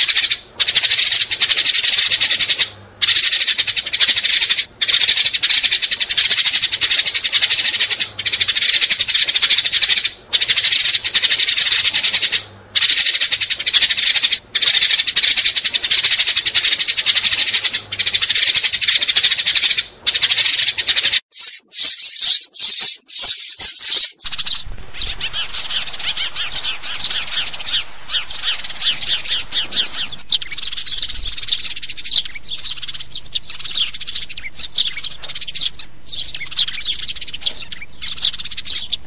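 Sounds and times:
sparrows chirping: 0:00.0 - 0:39.0.

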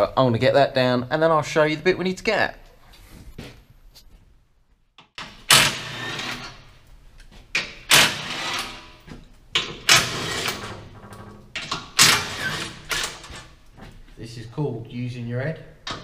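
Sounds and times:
cordless ratchet bursts: 0:07.9 - 0:08.9, 0:12.0 - 0:13.3.

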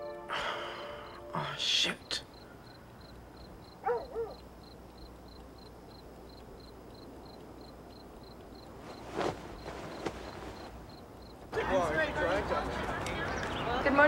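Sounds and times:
cricket chirping: 0:00.0 - 0:12.0
rustle of bedclothes: 0:08.6 - 0:11.0.

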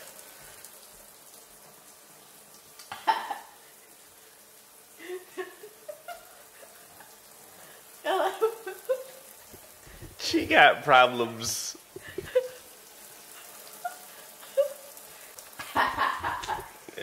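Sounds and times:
faint steady hiss: 0:00.0 - 0:17.0
woman laughing: 0:02.9 - 0:03.6, 0:05.0 - 0:07.2, 0:08.0 - 0:09.3, 0:11.9 - 0:12.8, 0:13.4 - 0:15.0, 0:15.6 - 0:16.9.

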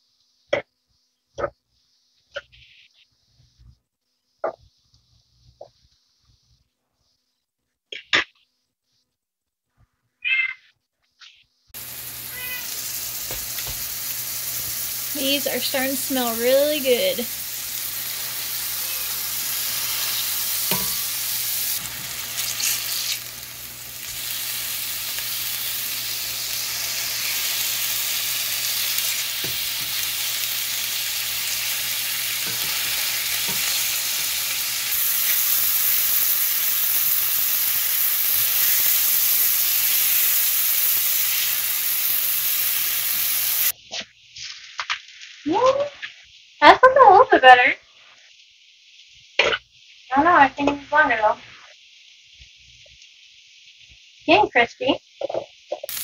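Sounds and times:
hash browns sizzling in a skillet: 0:11.7 - 0:56.0.

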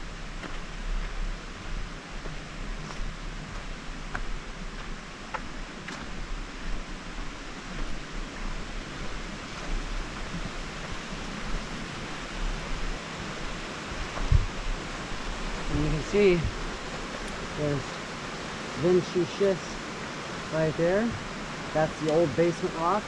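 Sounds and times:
steady rushing noise: 0:00.0 - 0:23.0
footsteps on gravel trail: 0:00.4 - 0:17.6.

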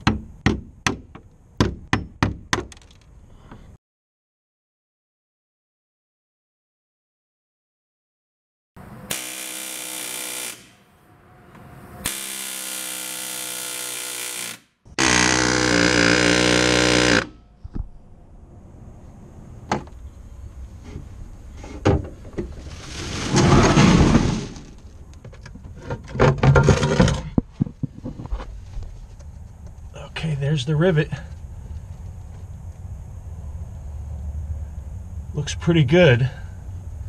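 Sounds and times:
pneumatic air hammer peening rivets: 0:09.1 - 0:10.8, 0:12.0 - 0:17.4.

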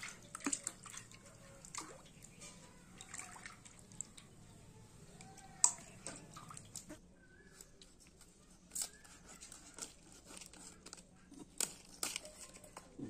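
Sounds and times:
dry leaves crinkling: 0:08.2 - 0:12.9.

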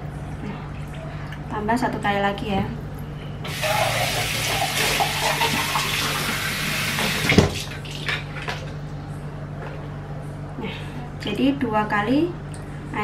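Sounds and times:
water running from a tap: 0:03.5 - 0:08.0.

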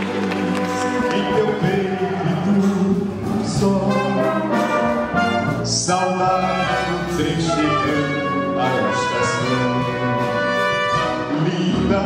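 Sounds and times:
wind band playing chords: 0:00.0 - 0:12.0.

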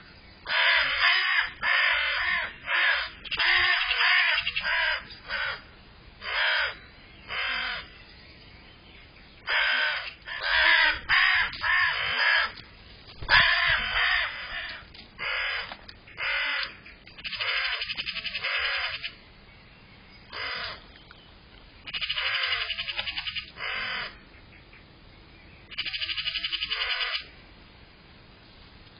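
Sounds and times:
crows cawing: 0:00.4 - 0:07.9, 0:09.4 - 0:19.2, 0:20.3 - 0:20.9, 0:21.9 - 0:24.5, 0:25.7 - 0:27.3.

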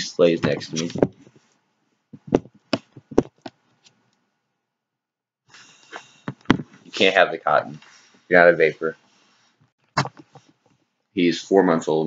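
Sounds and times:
knocks against microphone: 0:02.2 - 0:03.3, 0:06.3 - 0:06.8.

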